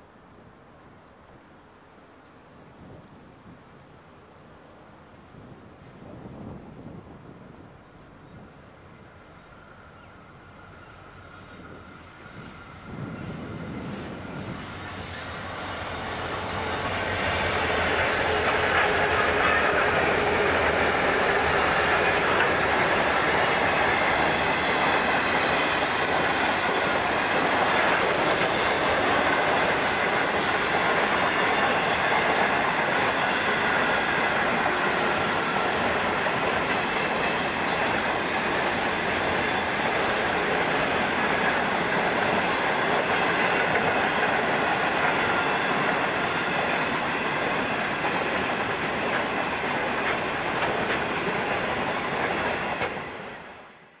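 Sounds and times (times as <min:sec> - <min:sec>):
train wheels rumbling on rails: 0:05.3 - 0:54.0
wheels clicking over rail joints: 0:17.4 - 0:53.2.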